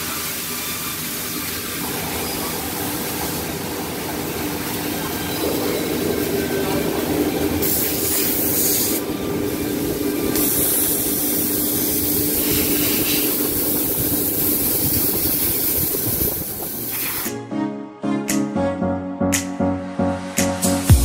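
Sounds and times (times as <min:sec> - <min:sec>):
machine hum: 0:01.8 - 0:16.8
strong airy hiss: 0:01.8 - 0:17.3.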